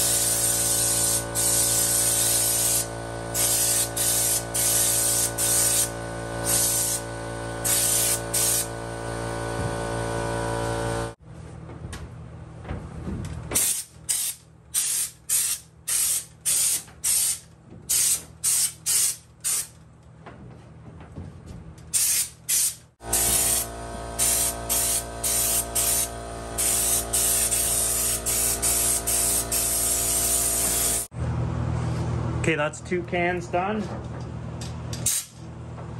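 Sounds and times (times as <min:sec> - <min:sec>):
spray gun hissing bursts: 0:00.0 - 0:08.7, 0:22.0 - 0:31.1.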